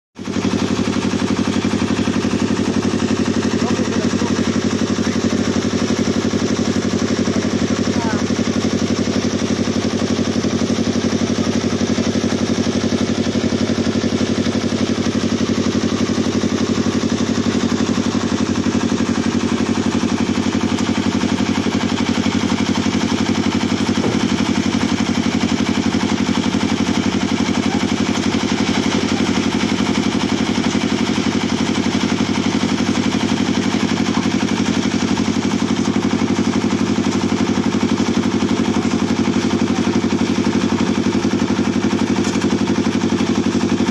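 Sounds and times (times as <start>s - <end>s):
concrete mixer engine running: 0.2s - 43.9s.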